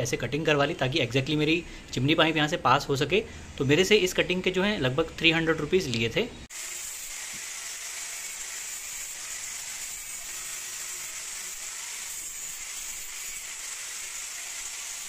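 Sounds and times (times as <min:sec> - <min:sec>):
angle grinder on steel: 0:06.5 - 0:15.0.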